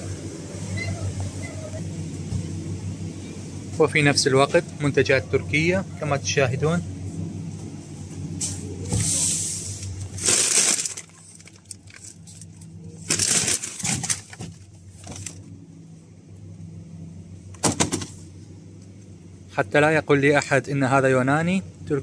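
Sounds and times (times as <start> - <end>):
low steady hum: 0.0 - 22.0
plastic packaging crinkling: 9.9 - 15.4.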